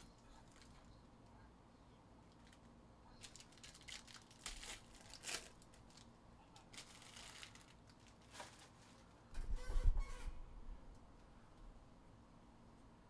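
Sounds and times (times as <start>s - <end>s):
foil wrapper crinkling and tearing: 2.3s - 9.1s.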